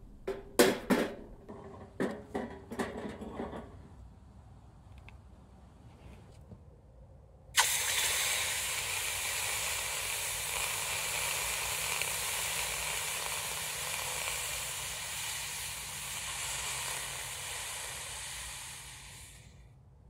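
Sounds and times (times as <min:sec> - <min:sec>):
hot metal sizzling in water: 0:07.6 - 0:19.5.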